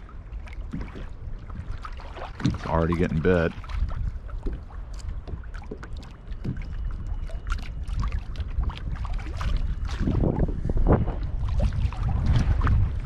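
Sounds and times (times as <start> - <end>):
small splashes: 0.0 - 10.2
low wind rumble: 0.0 - 13.0
waves slapping a kayak hull: 0.0 - 13.0.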